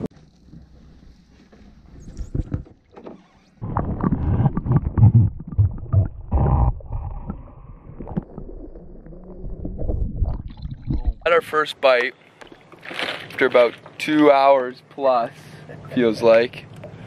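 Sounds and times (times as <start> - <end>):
water splashes: 3.6 - 14.5.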